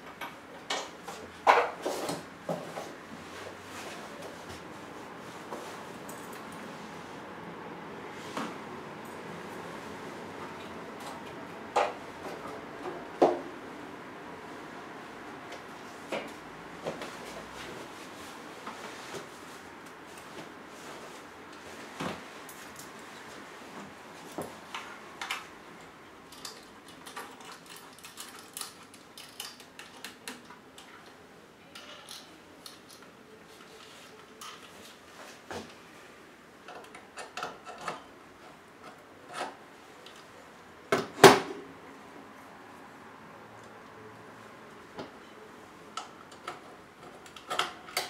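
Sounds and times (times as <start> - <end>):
objects handled with clicks and rubbing: 15.5 - 35.8.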